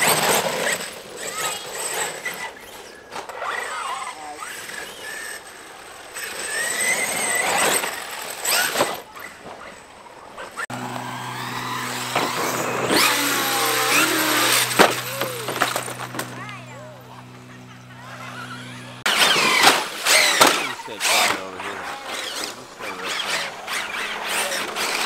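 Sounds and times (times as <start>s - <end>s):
electric motor whining: 10.6s - 25.0s
truck landing knocks: 13.9s - 16.4s.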